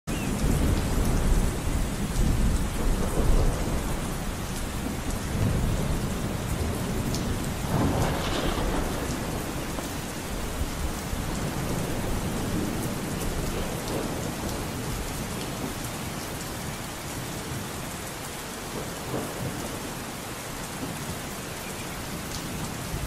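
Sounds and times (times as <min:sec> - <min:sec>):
steady rain: 0:00.1 - 0:23.0
thunder rumble: 0:00.2 - 0:16.4, 0:18.7 - 0:20.0.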